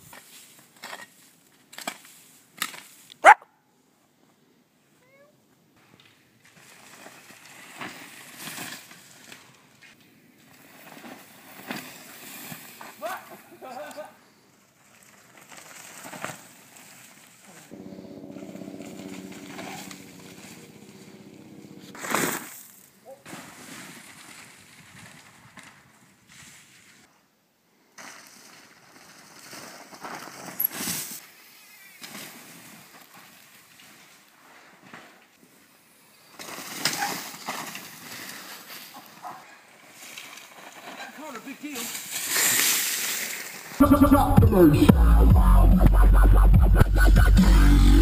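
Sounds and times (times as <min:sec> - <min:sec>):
bike tyres skidding over snow: 0:06.3 - 0:27.1, 0:28.0 - 0:43.8
bike rattling: 0:14.8 - 0:22.7, 0:36.4 - 0:43.8.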